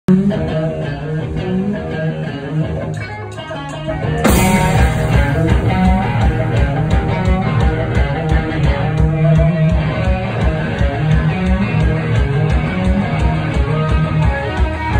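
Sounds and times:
live rock band: 0.1 - 14.9
drum crash: 4.0 - 11.4.

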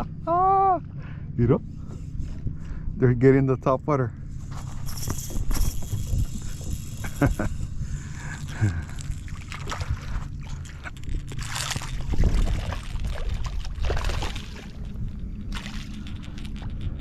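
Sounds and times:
steady low rumble: 0.0 - 17.0
fish splashing in water: 9.0 - 16.6.

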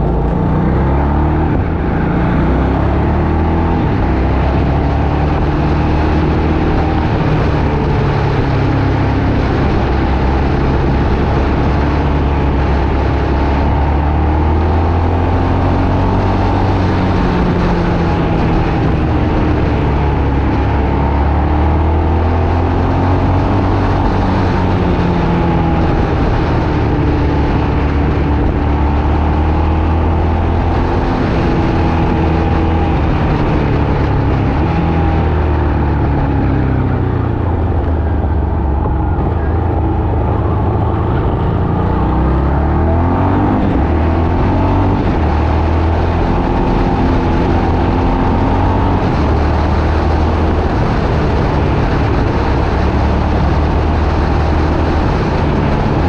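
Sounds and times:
vehicle engine and road noise: 0.0 - 56.0.

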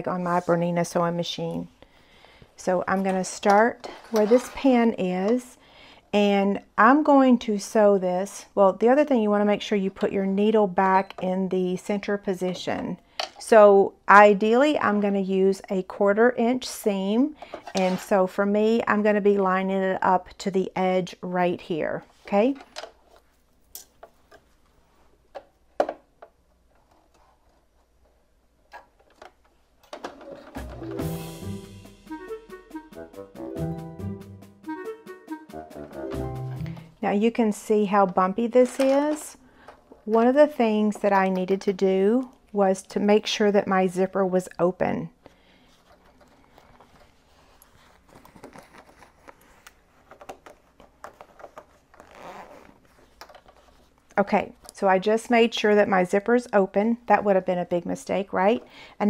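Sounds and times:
fabric rustling: 45.6 - 54.1
zipper sliding open: 51.6 - 53.1.

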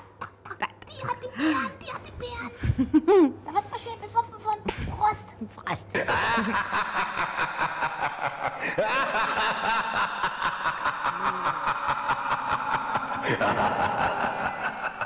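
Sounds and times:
cackling laughter: 6.0 - 15.0.

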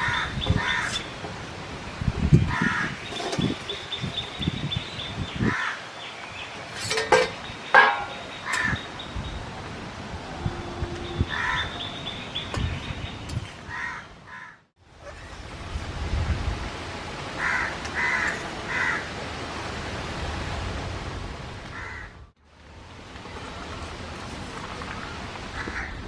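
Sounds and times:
crows cawing: 0.0 - 1.0, 5.5 - 5.8, 8.4 - 8.8, 11.3 - 11.8, 13.7 - 14.6, 17.4 - 19.1, 21.7 - 22.2, 25.6 - 26.0.

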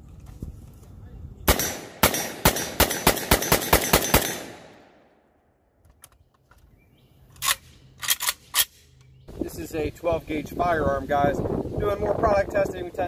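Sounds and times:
shotgun firing rapidly: 1.5 - 4.7
magazine clicks: 7.3 - 9.2.

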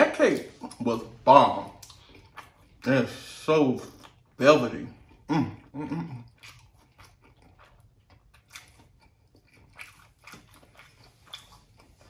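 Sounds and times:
wet chewing mouth clicks: 1.7 - 2.9, 5.0 - 12.0.

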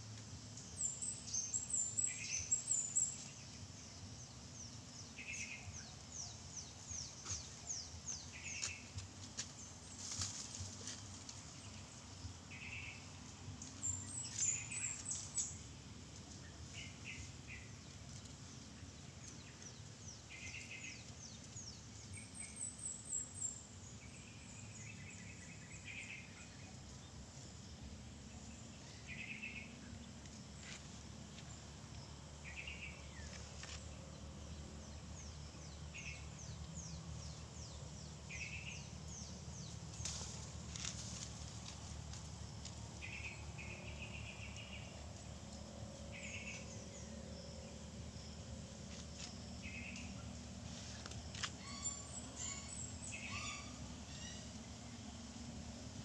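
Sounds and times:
faint steady background hum: 0.0 - 56.0
birds chirping: 0.4 - 55.8.

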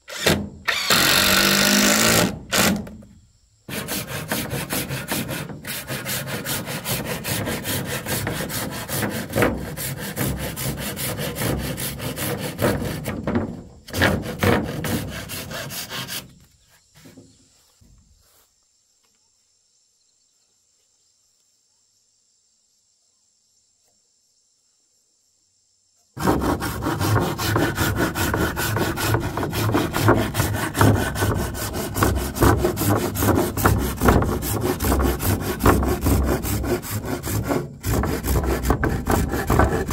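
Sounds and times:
handsaw cutting wood: 0.1 - 2.9, 3.7 - 16.3, 26.2 - 39.9.

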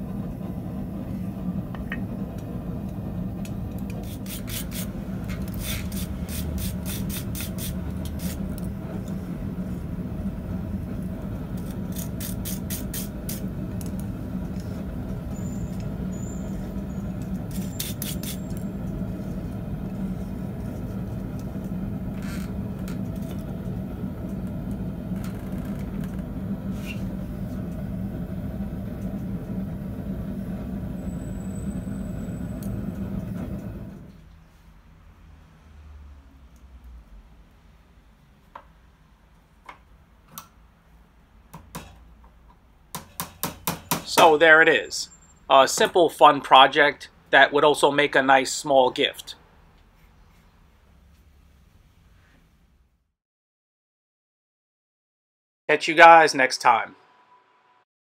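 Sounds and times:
steady low hum: 0.0 - 34.2.

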